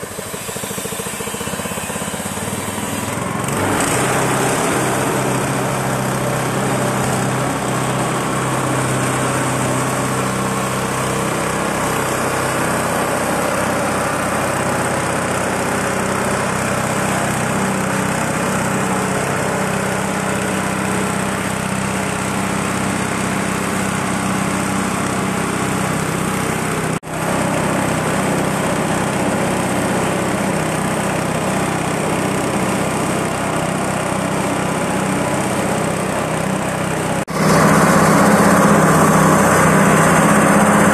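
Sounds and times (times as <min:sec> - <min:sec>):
mill grinding: 0:00.0 - 0:40.9
small engine droning: 0:00.0 - 0:40.9.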